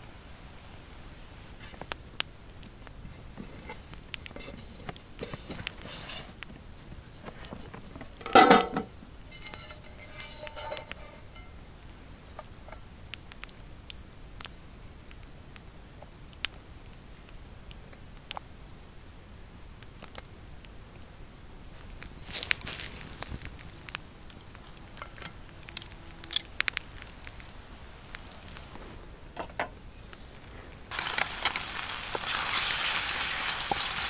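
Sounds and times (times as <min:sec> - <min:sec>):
rustle: 0:00.0 - 0:34.0
metal skillet clanking: 0:08.2 - 0:11.6.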